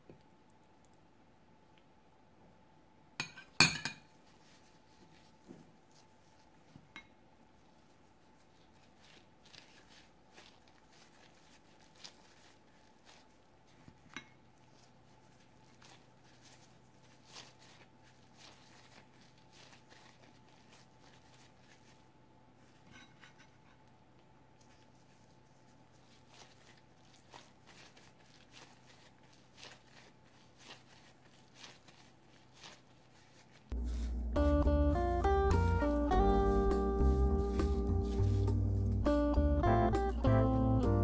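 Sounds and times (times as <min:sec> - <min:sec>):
faint steady hum: 0:00.0 - 0:41.0
gloved hands shaping sticky rice: 0:03.6 - 0:41.0.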